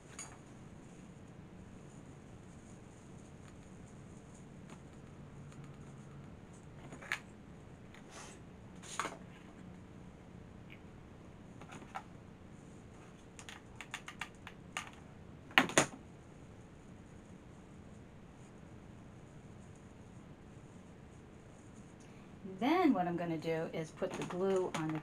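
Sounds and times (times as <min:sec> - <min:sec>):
small clicks and taps: 0:13.3 - 0:15.0, 0:24.1 - 0:25.0.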